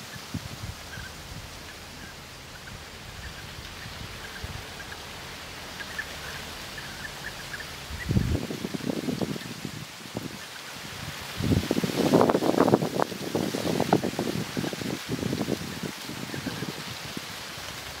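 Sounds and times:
birds calling: 0.0s - 10.9s
wind buffeting microphone: 0.0s - 18.0s.

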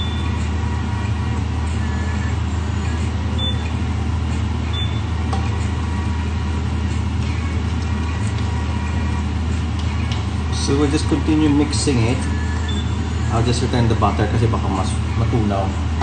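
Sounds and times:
low even hum: 0.0s - 16.0s.

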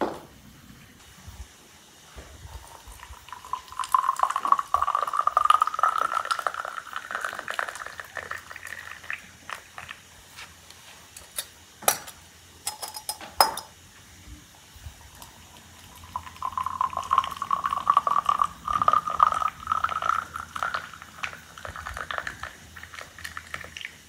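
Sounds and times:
hot water pouring into glass: 2.4s - 10.4s, 14.9s - 24.0s.

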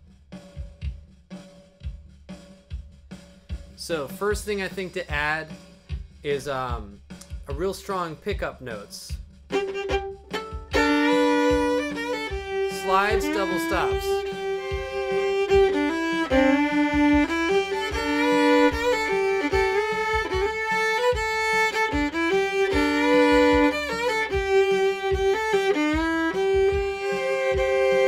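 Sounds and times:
steady low beat: 0.0s - 28.0s
solo fiddle melody: 9.5s - 28.0s.

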